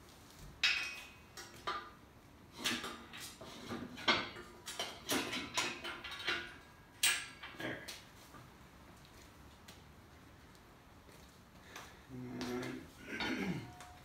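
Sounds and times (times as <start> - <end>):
metal clanks and scrapes: 0.6 - 8.0.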